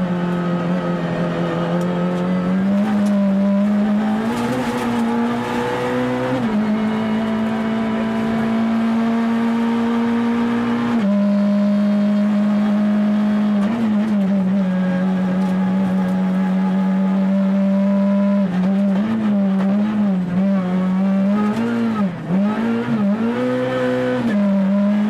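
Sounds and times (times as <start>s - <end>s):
tyre and road noise: 0.0s - 11.1s
car engine revving hard: 0.0s - 25.0s.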